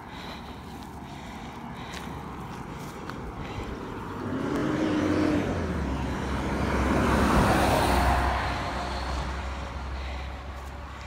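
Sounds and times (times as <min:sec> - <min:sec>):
truck passing: 0:00.0 - 0:11.0.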